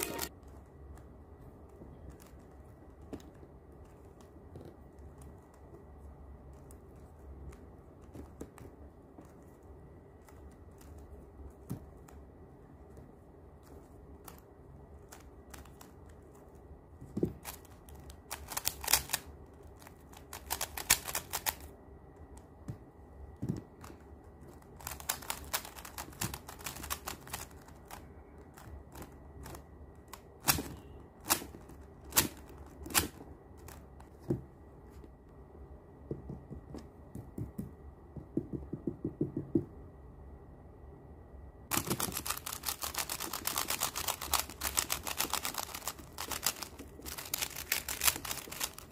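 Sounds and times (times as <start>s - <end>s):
plastic puzzle cube clicking: 17.4s - 21.7s, 24.8s - 28.0s, 41.7s - 48.9s.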